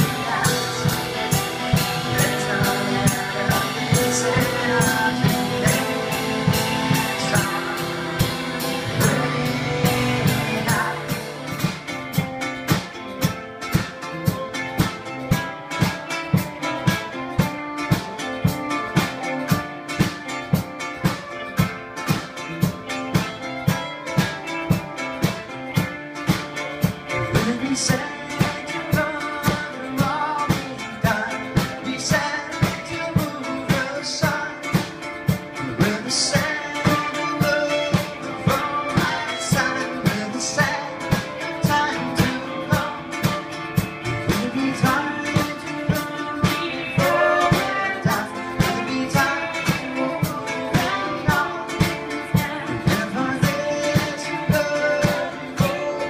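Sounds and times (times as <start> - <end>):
person singing: 0.0 - 13.0, 26.9 - 56.0
fiddle: 0.0 - 56.0
live band music: 0.0 - 56.0
steady drum beat: 0.0 - 56.0.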